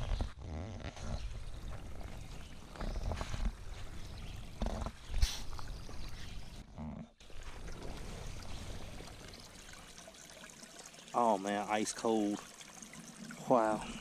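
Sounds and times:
water pouring into a bucket: 7.2s - 14.0s.

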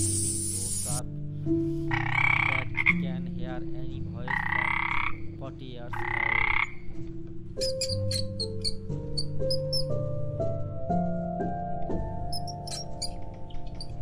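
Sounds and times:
frog croaking: 1.9s - 3.4s, 4.0s - 10.0s, 12.3s - 14.0s.

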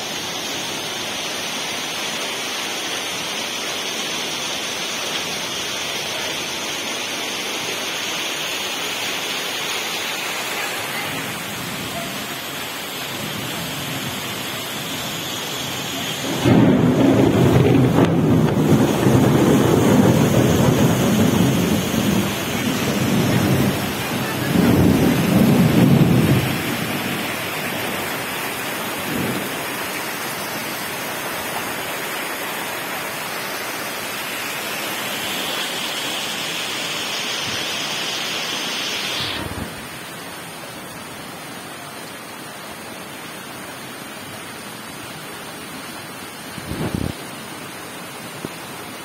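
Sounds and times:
floodwater pouring down lane: 0.0s - 49.0s
heavy rain: 0.0s - 49.0s
rolling thunder rumble: 15.8s - 29.9s.

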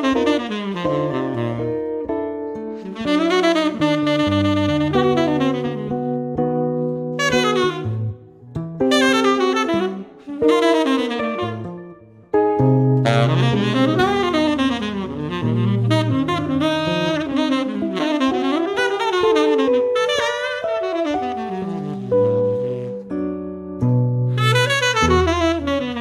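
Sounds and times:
electric guitar chords: 0.0s - 18.7s
tenor saxophone melody: 0.0s - 26.0s.

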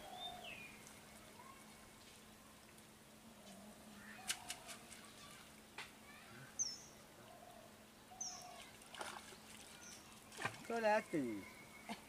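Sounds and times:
bird chirping: 0.0s - 1.6s, 6.6s - 8.7s
faint water splashes: 0.2s - 6.6s, 8.3s - 12.0s.

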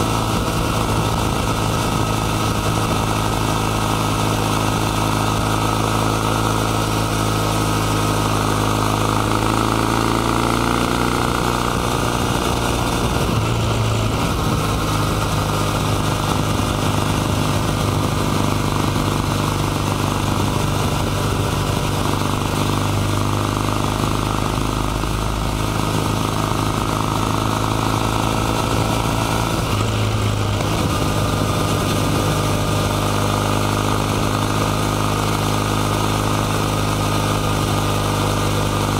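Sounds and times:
motorcycle engine accelerating: 0.0s - 38.9s.

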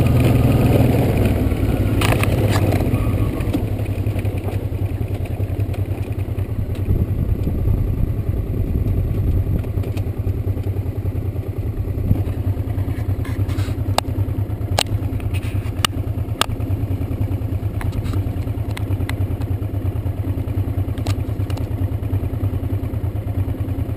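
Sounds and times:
motorcycle engine running: 0.0s - 23.9s
sharp clicks and knocks: 2.0s - 2.8s, 8.8s - 10.8s, 14.7s - 16.6s, 17.7s - 19.6s, 20.9s - 21.8s.

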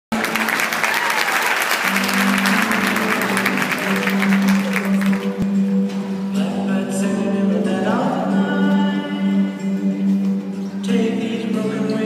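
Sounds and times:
audience applauding: 0.1s - 5.4s
music: 0.1s - 12.0s.

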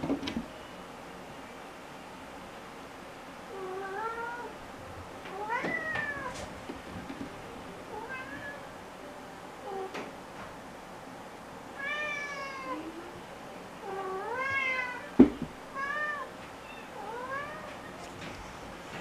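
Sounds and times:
cat meowing: 8.0s - 8.6s, 11.8s - 12.9s, 13.8s - 18.0s.

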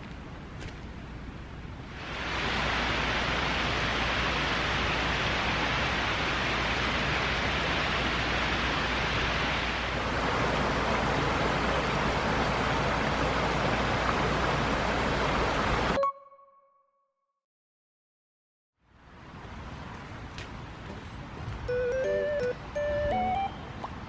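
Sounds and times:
stream rushing over rocks: 2.0s - 16.0s.

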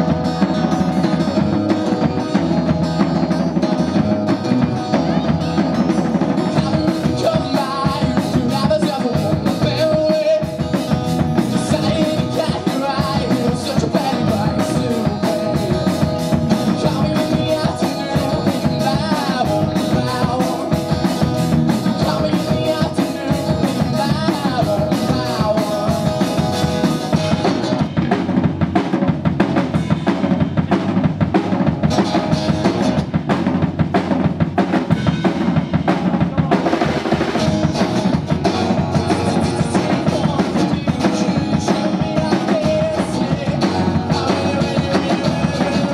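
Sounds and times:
drum kit beat: 0.0s - 45.9s
man singing: 4.9s - 28.2s, 35.9s - 45.9s
acoustic guitar strumming: 37.4s - 45.9s.

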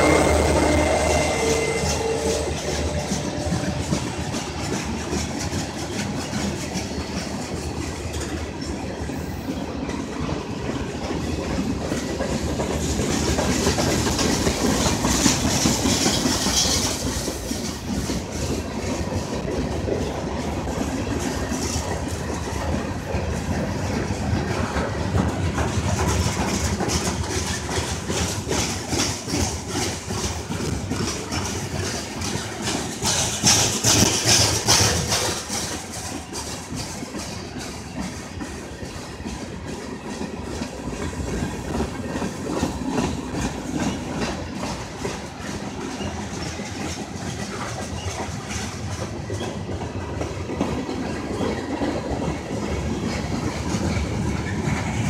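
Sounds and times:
clickety-clack over rail joints: 0.0s - 55.0s
steel wheels rumbling on rail: 0.0s - 55.0s.

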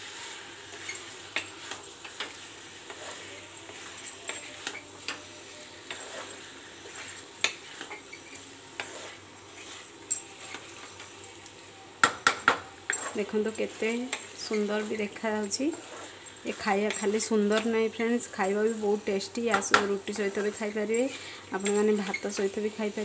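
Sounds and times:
oil sizzling in a pan: 0.0s - 23.0s
spatula scraping and knocking pan: 0.7s - 11.1s, 12.0s - 20.8s.

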